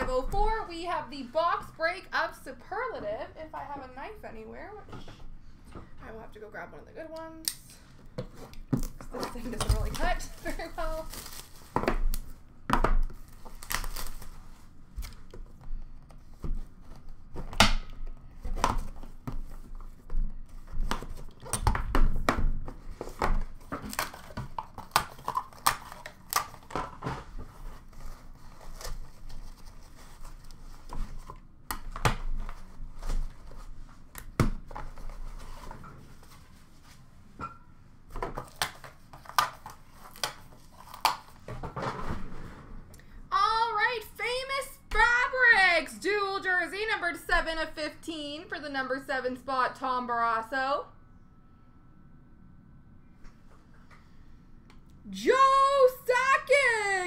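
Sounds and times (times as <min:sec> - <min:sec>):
plastic wrap crinkling and tearing: 0:09.7 - 0:12.3, 0:13.1 - 0:15.3.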